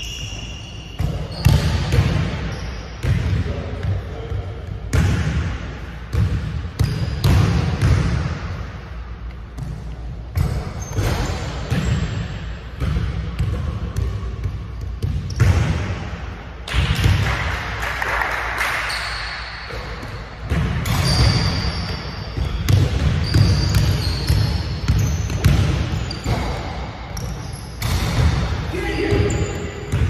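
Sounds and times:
shoes squeaking on court: 0.0s - 3.2s, 9.3s - 12.4s, 18.9s - 28.0s, 29.0s - 30.0s
basketball dribbled on wooden floor: 22.4s - 26.1s.

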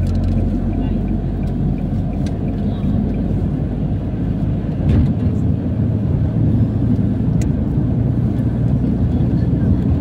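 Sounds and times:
road and engine noise in car cabin: 0.0s - 10.0s
thump: 4.8s - 5.3s.

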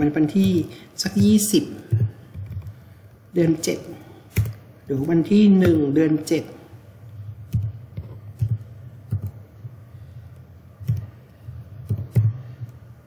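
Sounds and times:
computer keyboard keystrokes: 1.9s - 2.8s, 7.5s - 9.4s, 10.8s - 11.2s, 11.8s - 12.8s.

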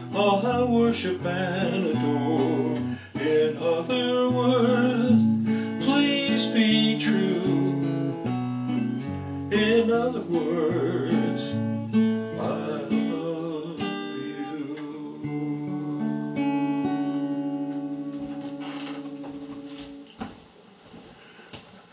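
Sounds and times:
man singing: 0.0s - 8.1s, 9.5s - 16.1s
acoustic guitar strummed: 0.0s - 20.3s.

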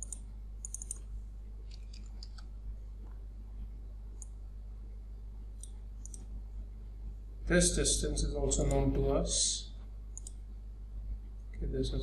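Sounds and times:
mouse and keyboard clicks: 0.0s - 1.1s, 1.7s - 2.5s
low electrical hum: 0.0s - 12.0s.

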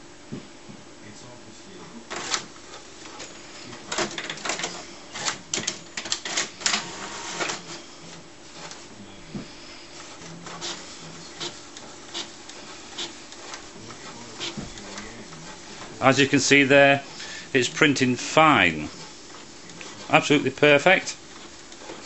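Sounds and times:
inkjet printer clicking and clattering: 2.1s - 7.8s, 11.4s - 17.0s, 18.8s - 22.0s
print carriage shuttling: 2.1s - 7.8s.

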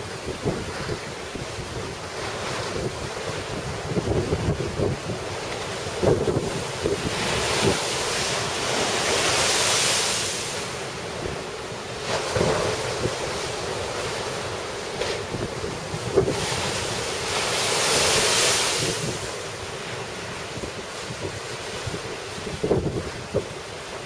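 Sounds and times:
wind buffeting microphone: 0.0s - 8.2s, 15.2s - 19.4s, 20.5s - 23.6s
surf breaking against seawall: 0.2s - 24.0s.

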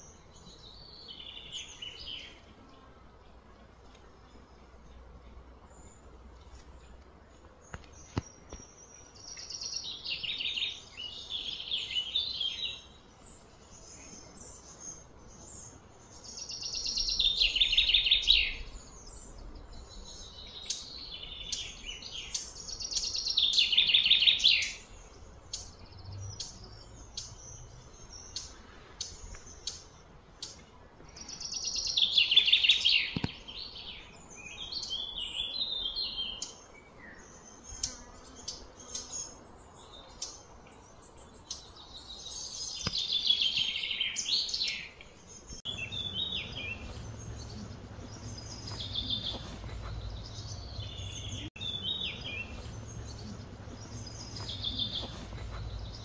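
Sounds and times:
songbird singing rapid high notes: 45.6s - 56.0s.

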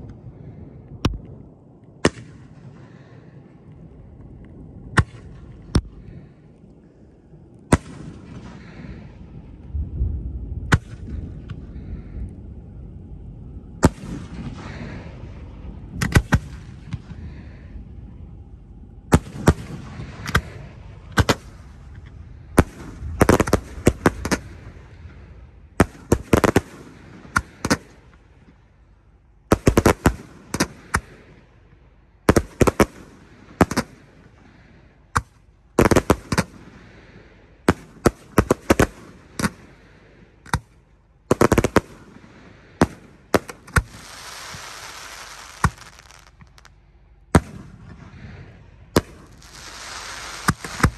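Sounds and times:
fireworks bangs: 19.1s - 28.2s, 41.3s - 50.9s
hissing rush: 43.9s - 46.3s, 49.3s - 50.9s.

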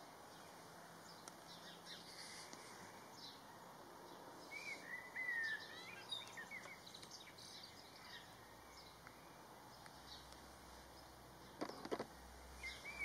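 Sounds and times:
faint background hiss: 0.0s - 13.0s
high bird chirps: 4.5s - 9.0s.

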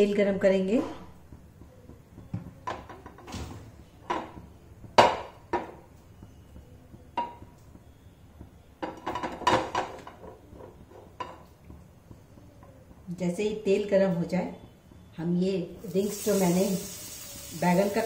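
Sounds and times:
frying pan knocking on stove grate: 4.0s - 6.0s, 7.1s - 7.6s, 8.4s - 11.8s.

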